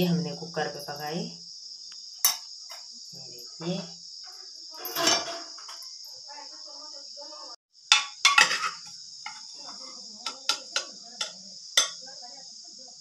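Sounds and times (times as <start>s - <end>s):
high insect chorus: 0.0s - 13.0s
metal spoon clinking on pot: 2.2s - 2.5s, 7.9s - 9.5s, 10.2s - 12.0s.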